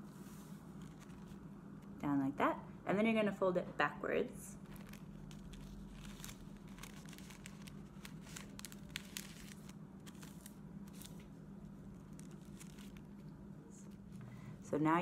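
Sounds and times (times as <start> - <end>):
tissue paper crinkling: 4.6 - 14.2.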